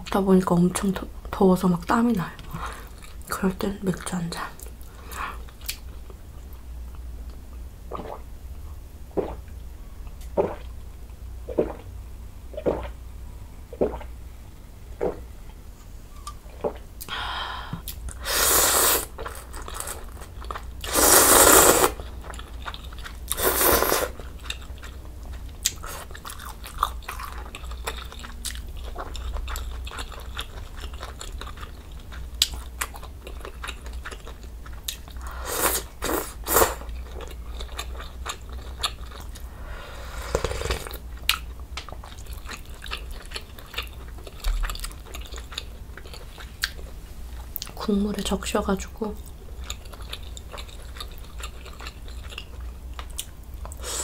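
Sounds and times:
slurping: 0:09.2 - 0:09.4, 0:12.6 - 0:13.0, 0:18.2 - 0:20.2, 0:20.8 - 0:22.0, 0:23.3 - 0:24.2, 0:39.6 - 0:41.0
chewing food: 0:19.1 - 0:20.9, 0:21.9 - 0:35.4, 0:36.0 - 0:39.5, 0:40.3 - 0:46.9, 0:49.2 - 0:53.8.

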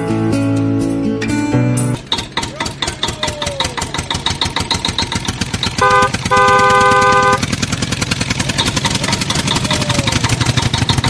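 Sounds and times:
plucked-string music: 0:00.0 - 0:02.8
tractor engine chugging: 0:02.0 - 0:11.0
horn honk: 0:05.8 - 0:07.6.

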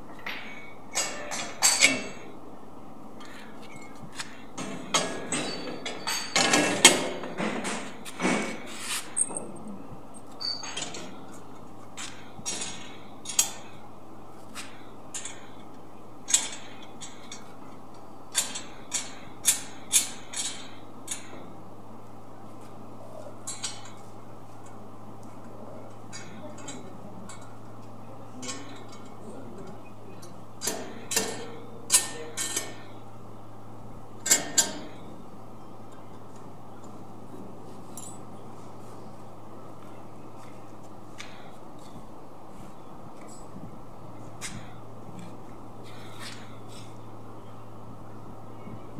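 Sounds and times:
steady low hum: 0:00.0 - 0:48.9
metal parts clicking and clinking: 0:04.6 - 0:07.9, 0:10.2 - 0:11.2, 0:12.0 - 0:13.8, 0:14.6 - 0:15.6, 0:16.3 - 0:17.5, 0:18.3 - 0:21.4, 0:28.4 - 0:32.8, 0:34.2 - 0:35.1, 0:37.9 - 0:38.3.

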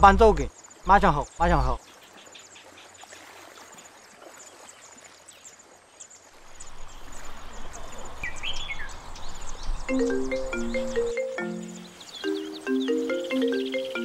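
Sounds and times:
bird calling: 0:06.6 - 0:14.0
high bird chirps: 0:07.6 - 0:14.0.

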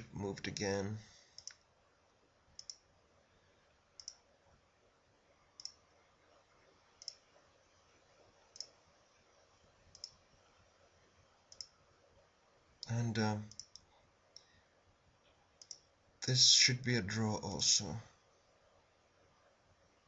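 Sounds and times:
computer mouse clicks: 0:01.3 - 0:01.6, 0:02.6 - 0:02.9, 0:04.0 - 0:04.3, 0:05.6 - 0:05.8, 0:07.0 - 0:07.3, 0:08.5 - 0:08.8, 0:09.9 - 0:10.2, 0:11.5 - 0:11.8, 0:12.8 - 0:14.5, 0:15.6 - 0:15.9.

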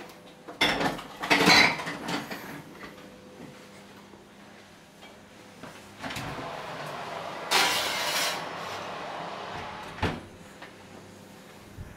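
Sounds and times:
oven door shutting: 0:06.0 - 0:10.3
metal pan scraping onto oven rack: 0:06.6 - 0:09.2.

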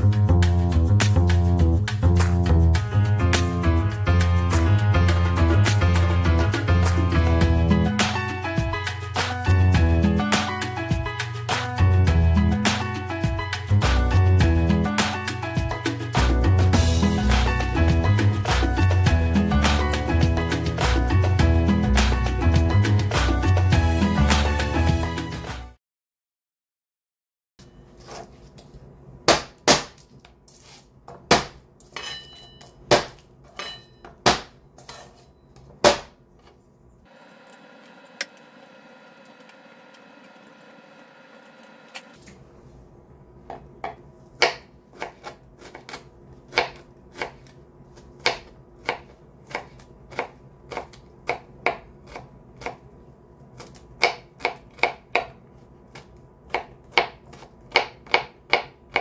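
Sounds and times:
knife chopping on cutting board: 0:29.3 - 0:30.1, 0:31.1 - 0:31.6, 0:32.9 - 0:33.2, 0:34.2 - 0:35.0, 0:35.8 - 0:36.2, 0:43.5 - 0:52.8, 0:53.6 - 0:59.0.

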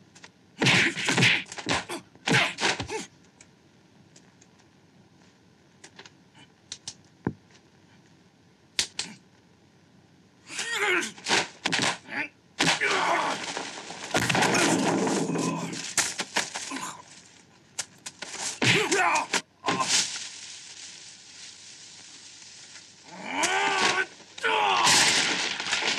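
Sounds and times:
punch and kick impacts: 0:00.6 - 0:03.0, 0:18.6 - 0:19.0
fighters shouting: 0:00.6 - 0:03.1, 0:10.5 - 0:11.2, 0:12.1 - 0:13.4, 0:18.6 - 0:19.9, 0:23.1 - 0:25.0.

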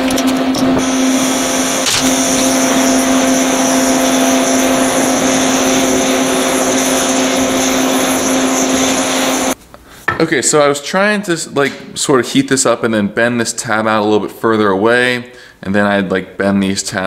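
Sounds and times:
steady low hum: 0:00.0 - 0:10.6
torch flame hissing: 0:00.8 - 0:09.6.

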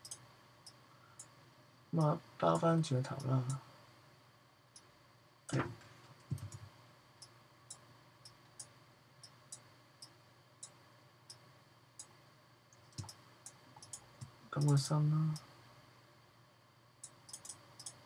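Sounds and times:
computer mouse clicking: 0:00.0 - 0:01.3, 0:06.2 - 0:06.6, 0:12.7 - 0:14.8, 0:17.0 - 0:18.0.

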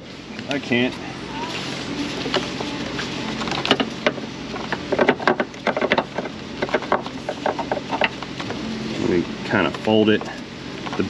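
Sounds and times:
shop fan droning: 0:00.0 - 0:11.0
ignition coil clicks and rattles: 0:03.3 - 0:08.6, 0:09.6 - 0:11.0.

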